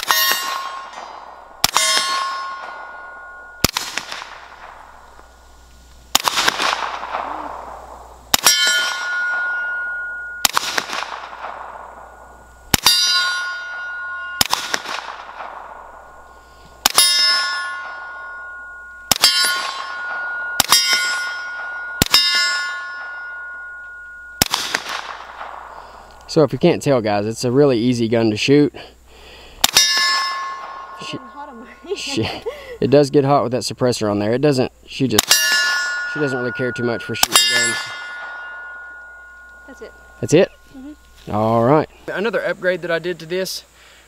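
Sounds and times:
suppressed gunshots: 0:00.0 - 0:05.1, 0:06.1 - 0:09.7, 0:10.4 - 0:13.0, 0:13.8 - 0:16.1, 0:19.1 - 0:22.4, 0:24.4 - 0:25.8
steel target clanging: 0:00.0 - 0:05.2, 0:06.4 - 0:26.2, 0:29.6 - 0:32.3, 0:35.1 - 0:41.1.

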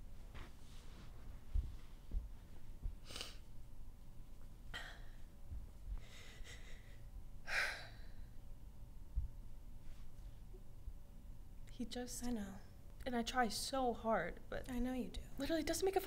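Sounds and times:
woman sighing and breathing: 0:06.0 - 0:08.4.

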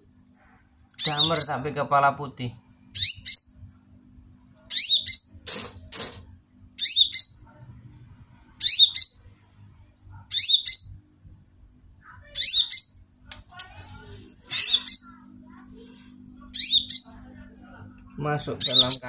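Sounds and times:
bird singing high twittering phrases: 0:01.0 - 0:01.8, 0:03.0 - 0:03.7, 0:04.7 - 0:05.4, 0:06.8 - 0:07.5, 0:08.6 - 0:09.4, 0:10.3 - 0:11.1, 0:12.2 - 0:13.2, 0:14.5 - 0:15.3, 0:16.4 - 0:17.3, 0:18.4 - 0:19.0.

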